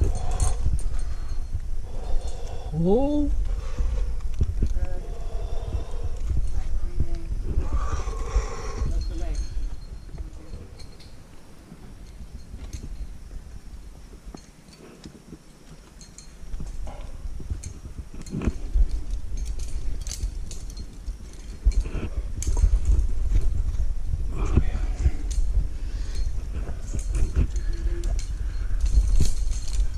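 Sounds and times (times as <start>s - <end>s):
low rumble: 0.0s - 12.5s
carabiners clinking: 0.0s - 29.9s.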